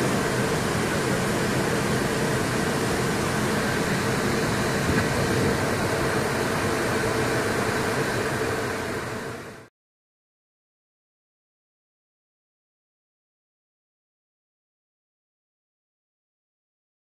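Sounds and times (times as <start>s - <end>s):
jet engines roaring in flight: 0.0s - 9.7s
steady hums: 0.0s - 9.7s.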